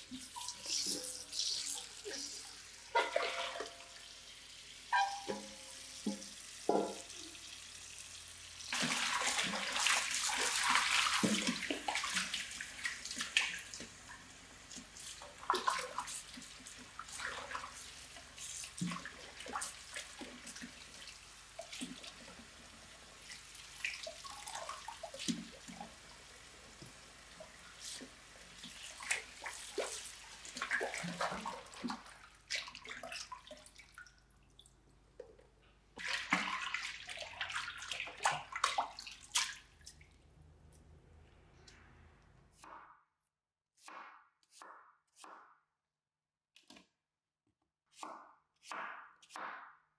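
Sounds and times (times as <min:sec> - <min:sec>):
water splashing and sloshing: 0:00.0 - 0:07.9, 0:08.5 - 0:41.0
tap running into a basin: 0:04.9 - 0:07.5, 0:08.7 - 0:14.1.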